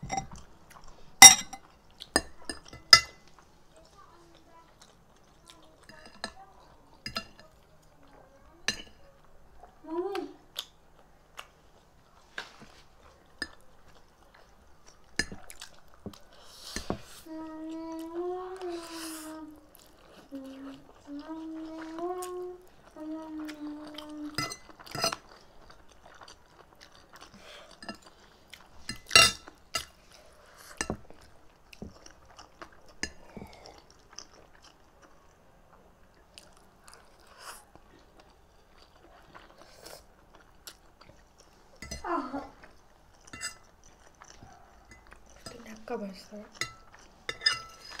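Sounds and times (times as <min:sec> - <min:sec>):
cutlery clinking on plates: 0:01.2 - 0:01.6, 0:28.9 - 0:30.0, 0:46.6 - 0:48.0
chewing and slurping noodles: 0:19.7 - 0:35.3, 0:36.2 - 0:41.8, 0:42.6 - 0:45.7.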